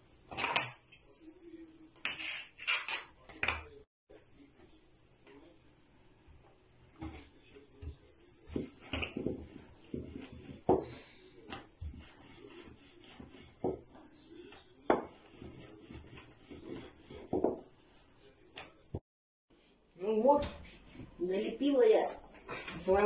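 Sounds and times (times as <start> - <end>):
rolling pin rolling dough: 5.6 - 18.9
wood knocking on counter: 17.2 - 17.7.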